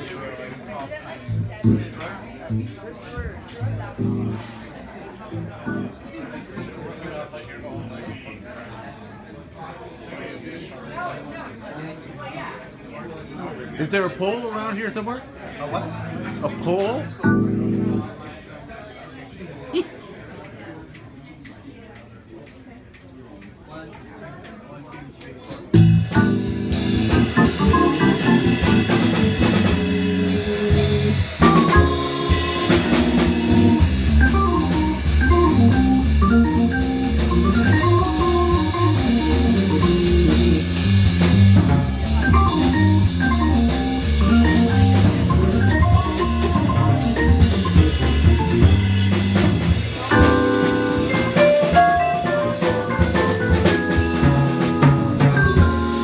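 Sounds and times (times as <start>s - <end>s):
drum kit: 1.3s - 2.6s, 25.6s - 56.0s
electronic organ keyboard: 3.9s - 4.5s, 5.3s - 6.0s, 16.2s - 18.1s, 25.8s - 40.9s, 41.7s - 49.1s, 50.1s - 56.0s.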